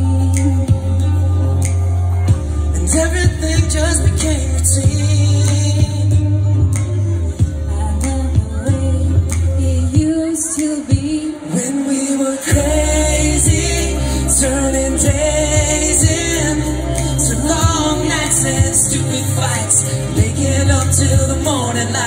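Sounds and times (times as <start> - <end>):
live pop music: 0.0 - 22.0
woman singing: 7.6 - 22.0.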